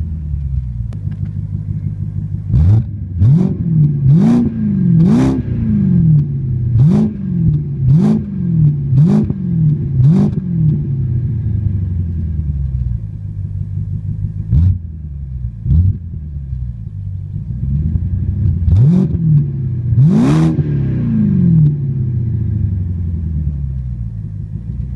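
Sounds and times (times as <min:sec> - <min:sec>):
car engine idling: 0:00.0 - 0:24.9
car engine revving: 0:00.0 - 0:24.9.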